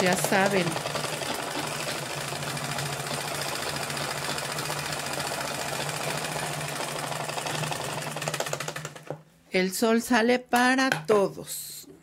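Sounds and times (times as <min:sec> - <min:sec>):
sewing machine running: 0:00.0 - 0:09.2.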